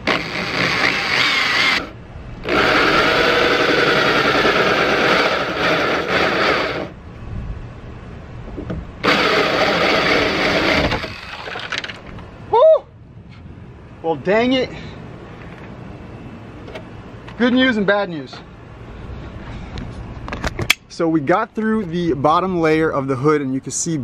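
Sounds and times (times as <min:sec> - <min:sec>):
electric drill cutting fiberglass: 0:00.0 - 0:07.0, 0:09.0 - 0:11.7.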